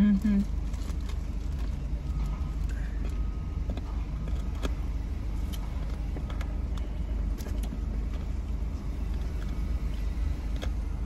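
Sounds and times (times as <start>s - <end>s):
car engine idling rumble: 0.0s - 11.0s.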